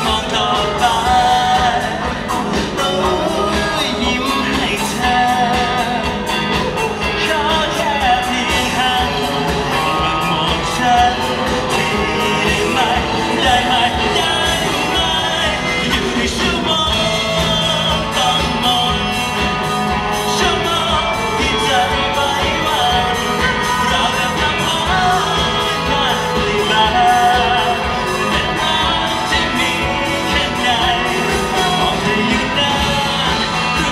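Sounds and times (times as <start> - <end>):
drums steady beat: 0.0 - 33.9
lead vocal singing: 0.0 - 33.9
live pop-rock band: 0.0 - 33.9.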